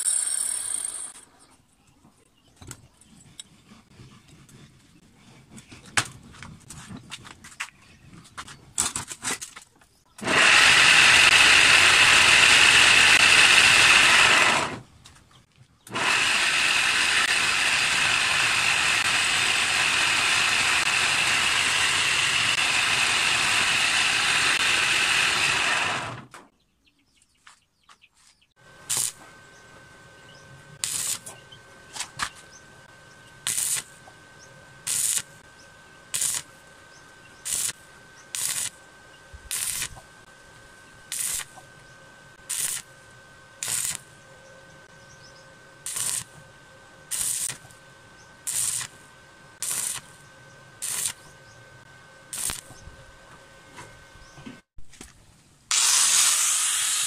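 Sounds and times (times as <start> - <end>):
stick welder arc tacks: 8.4 - 14.8, 15.8 - 26.4, 28.8 - 29.3, 30.8 - 32.4, 33.4 - 34.2, 34.8 - 35.4, 36.1 - 36.6, 37.4 - 38.8, 39.4 - 40.1, 41.0 - 41.7, 42.4 - 42.9, 43.6 - 44.2, 45.8 - 46.4, 47.1 - 47.8, 48.4 - 49.0, 49.6 - 50.2, 50.8 - 51.3, 52.3 - 52.8
electric motor running: 10.2 - 14.9, 15.9 - 26.3, 28.6 - 54.2, 55.7 - 57.0
faint hum: 28.6 - 55.7.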